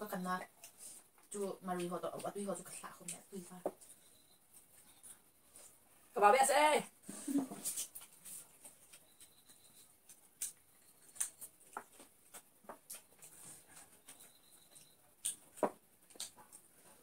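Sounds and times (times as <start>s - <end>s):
people chewing and eating: 0.4s - 6.1s, 7.0s - 17.0s.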